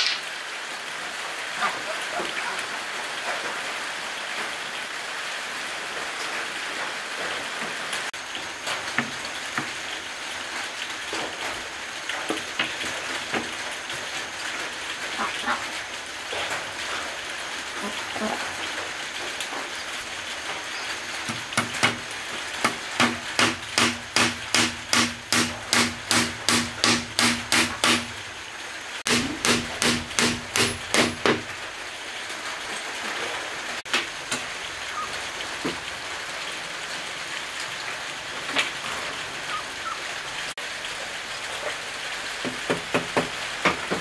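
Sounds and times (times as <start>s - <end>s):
steady hiss: 0.0s - 5.2s
hammer driving nails: 23.0s - 28.1s, 29.1s - 31.4s.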